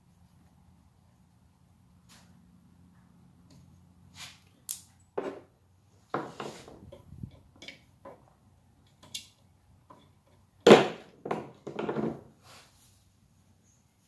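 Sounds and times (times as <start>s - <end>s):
wrench and bolts clinking on metal: 7.2s - 8.0s.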